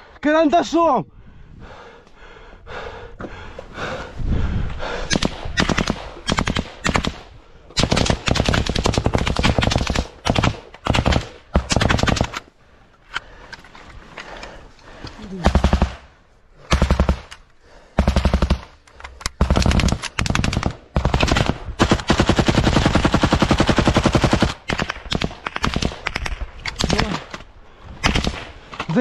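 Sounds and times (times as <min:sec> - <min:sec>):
automatic gunfire: 0:05.1 - 0:12.4, 0:15.4 - 0:16.1, 0:16.7 - 0:17.3, 0:18.0 - 0:18.7, 0:19.4 - 0:27.3.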